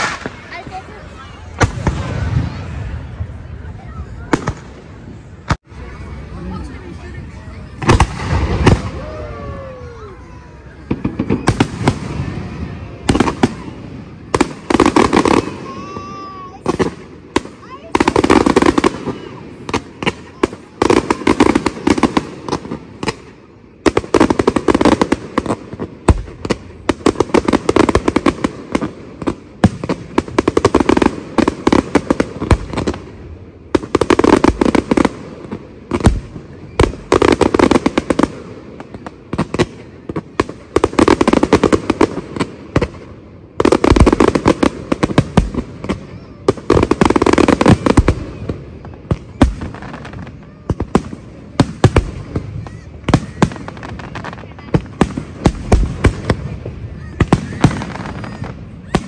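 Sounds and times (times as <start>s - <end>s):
firework shell bursts and crackling: 0.0s - 2.6s
deep firework booms: 0.0s - 5.8s, 7.8s - 59.0s.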